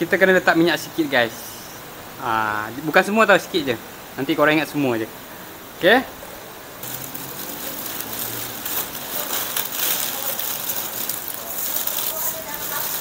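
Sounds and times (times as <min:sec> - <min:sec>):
plastic bag crinkling: 0:06.8 - 0:13.0.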